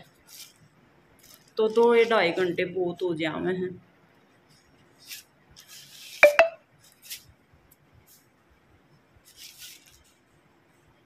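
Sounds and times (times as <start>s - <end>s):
soft rustles: 9.2s - 10.3s.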